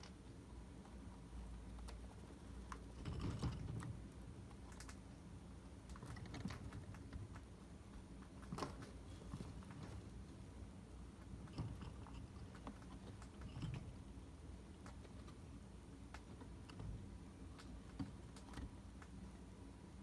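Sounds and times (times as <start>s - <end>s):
chinchillas clicking and rustling in cage: 2.6s - 5.1s, 5.8s - 10.2s, 11.0s - 14.1s, 16.0s - 19.2s.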